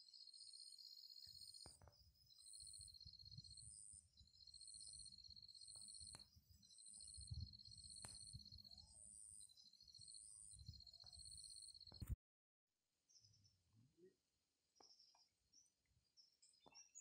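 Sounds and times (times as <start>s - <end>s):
high insect chirp: 0.0s - 12.1s
insect pulsed trill: 0.0s - 12.1s
sharp clicks: 7.8s - 8.6s.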